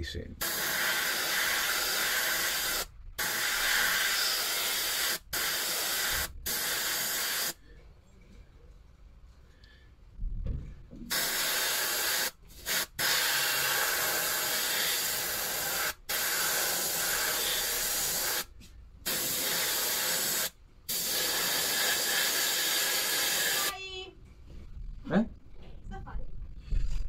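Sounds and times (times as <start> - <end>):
airbrush spraying hiss: 0.4 - 7.6, 11.1 - 23.8.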